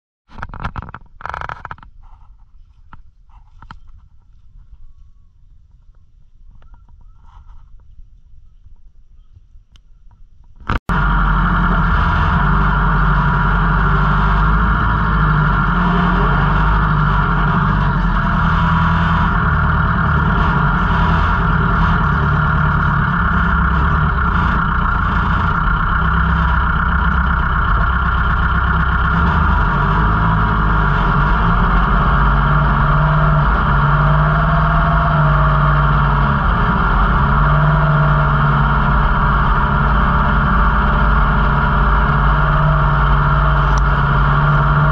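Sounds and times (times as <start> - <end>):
tractor diesel engine running: 10.7 - 44.9.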